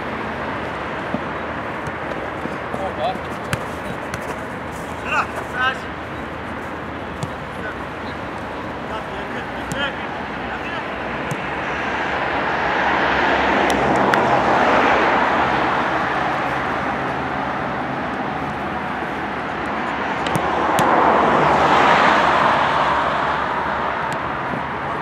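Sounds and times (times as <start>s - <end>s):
outdoor rushing noise: 0.0s - 25.0s.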